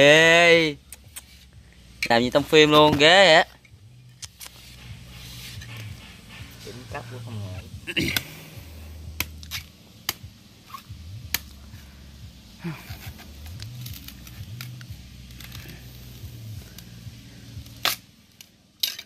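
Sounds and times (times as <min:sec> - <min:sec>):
machete chopping coconut husk: 0:08.0 - 0:08.4, 0:09.1 - 0:11.6.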